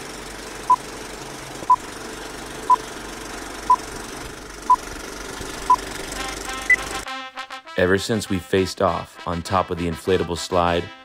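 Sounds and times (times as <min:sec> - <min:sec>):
steady mechanical rattle: 0:00.0 - 0:06.5.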